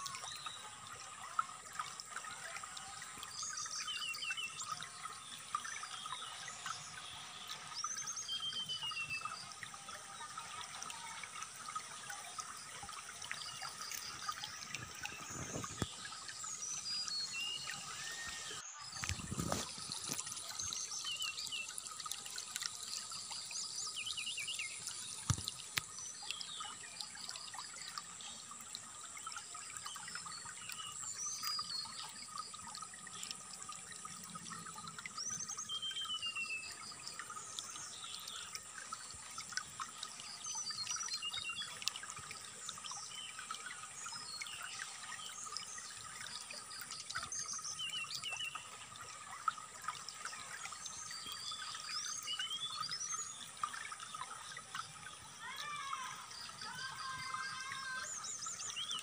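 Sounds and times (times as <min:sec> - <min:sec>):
trickling water: 0:00.0 - 0:59.0
songbird chirps and whistles: 0:16.7 - 0:19.6.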